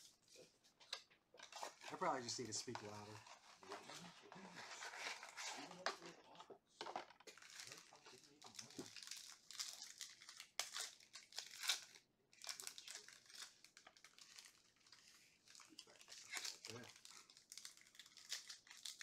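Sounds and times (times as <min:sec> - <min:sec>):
foil packs crinkling: 0:01.4 - 0:05.8, 0:07.3 - 0:19.0
foil pack tearing open: 0:15.9 - 0:19.0.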